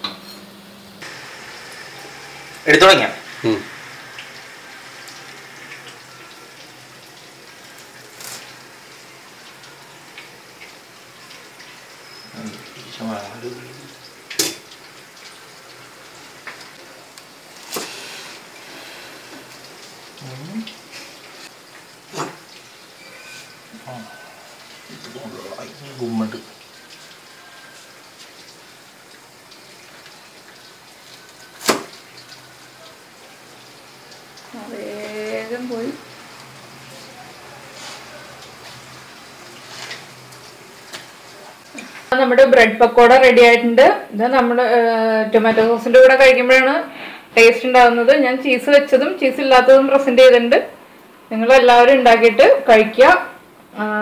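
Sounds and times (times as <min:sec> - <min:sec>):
steady hiss: 0:01.0 - 0:42.1.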